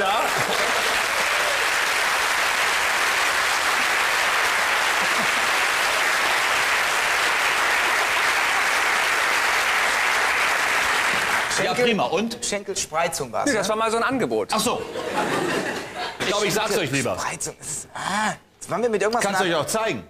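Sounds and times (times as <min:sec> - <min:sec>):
audience applauding: 0:00.0 - 0:11.7.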